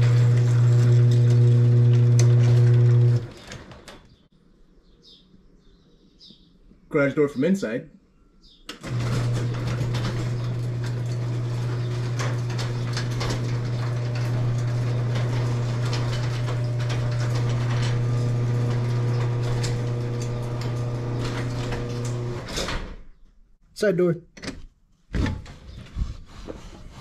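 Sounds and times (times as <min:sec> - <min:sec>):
garage door opener motor hum: 0:00.0 - 0:04.1, 0:08.7 - 0:23.0
chain and door clicking and rattling: 0:09.0 - 0:22.9.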